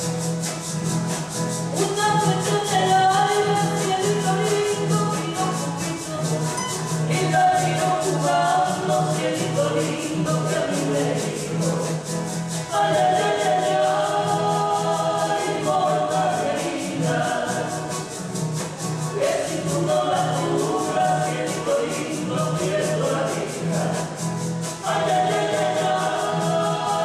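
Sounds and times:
shaker rattling a beat: 0:00.0 - 0:27.0
strummed acoustic guitars: 0:00.0 - 0:27.0
people singing: 0:01.7 - 0:27.0.

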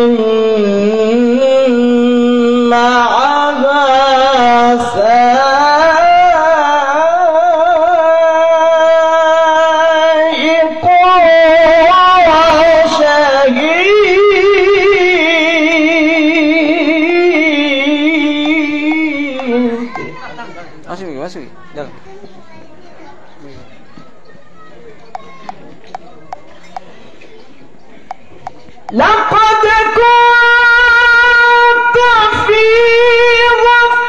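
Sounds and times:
man reciting in chant: 0:00.0 - 0:20.0, 0:28.9 - 0:34.0.

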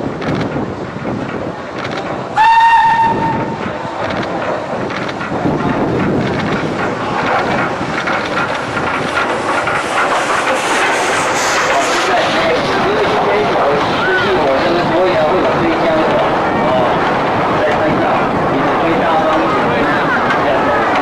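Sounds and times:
locomotive rumble and wheel clatter: 0:00.0 - 0:21.0
steam locomotive whistle: 0:02.4 - 0:03.6.

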